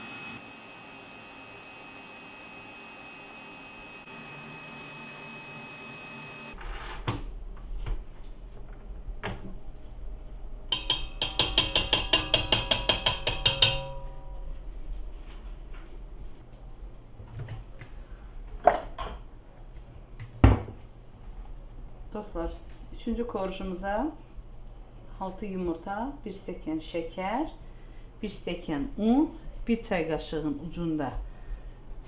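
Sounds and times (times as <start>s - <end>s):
metal tapping on steel bowl: 10.7s - 14.4s.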